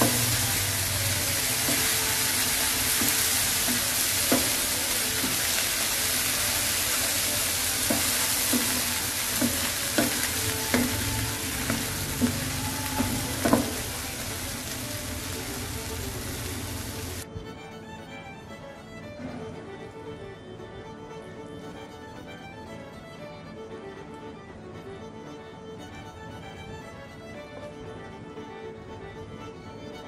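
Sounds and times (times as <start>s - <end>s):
spatula scraping pan: 0.0s - 14.8s
vegetables sizzling in frying pan: 0.0s - 17.2s.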